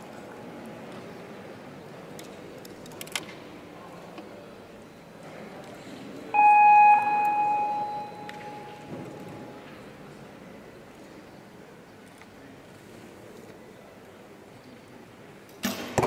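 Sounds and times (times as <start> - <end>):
electronic signal tone: 6.4 - 9.6.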